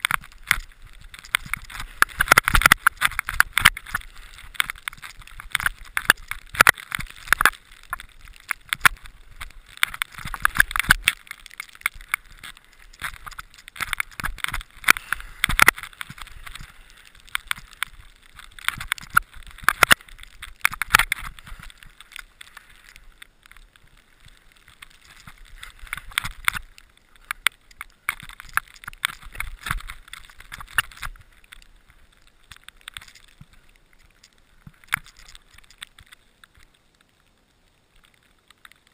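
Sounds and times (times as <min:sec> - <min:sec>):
skis scraping over snow: 0:00.0 - 0:23.0
sharp crackles and knocks: 0:00.0 - 0:38.9.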